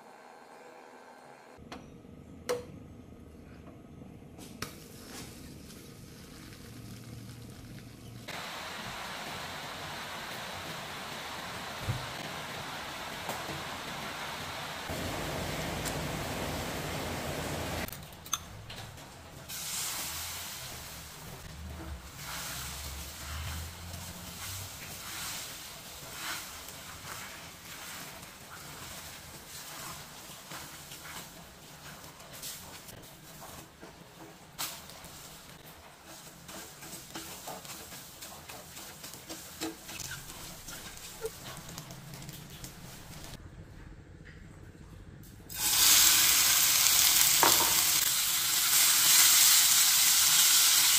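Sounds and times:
egg sizzling in a frying pan: 5.6 - 17.9, 19.5 - 21.4, 22.1 - 33.6, 45.5 - 50.9
spatula scraping a frying pan: 21.8 - 32.0, 35.0 - 41.8.

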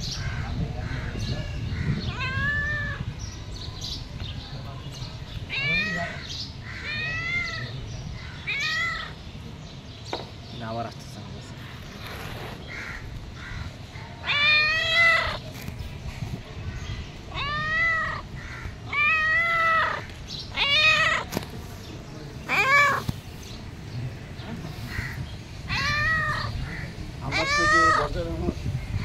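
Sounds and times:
cat meowing: 2.0 - 3.1, 5.4 - 6.2, 6.8 - 7.8, 8.4 - 9.2, 14.2 - 15.4, 17.3 - 21.3, 22.4 - 23.1, 25.6 - 28.2.

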